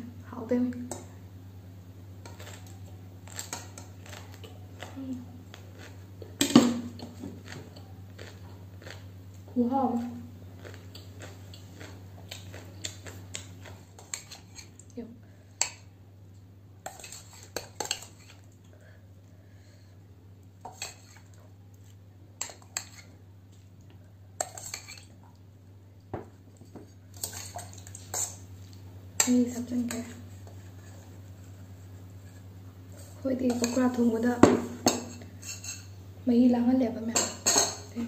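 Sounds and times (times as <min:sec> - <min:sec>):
low steady hum: 0:00.0 - 0:38.0
metal spoon clinking on bowl: 0:37.2 - 0:37.9.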